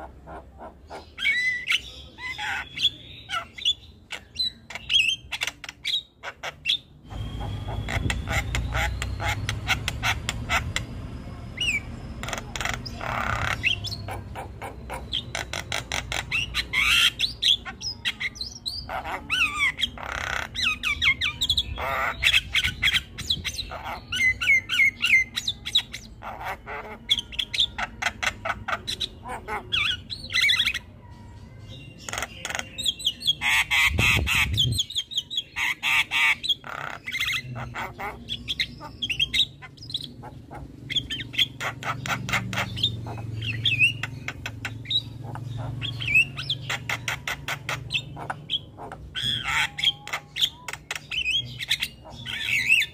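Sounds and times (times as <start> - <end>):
bird chattering and squawking: 0.0 - 52.9.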